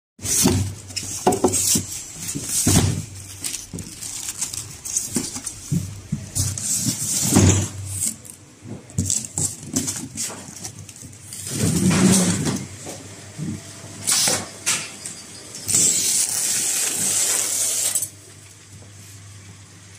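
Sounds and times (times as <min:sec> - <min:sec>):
rustling and scraping foam: 0:00.2 - 0:12.6.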